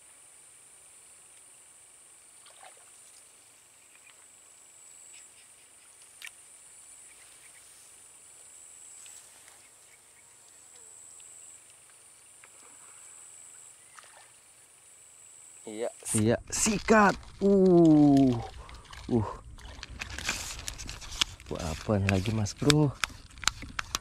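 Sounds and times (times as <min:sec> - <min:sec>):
insects droning: 0:00.0 - 0:24.0
faint ticks: 0:10.4 - 0:12.8.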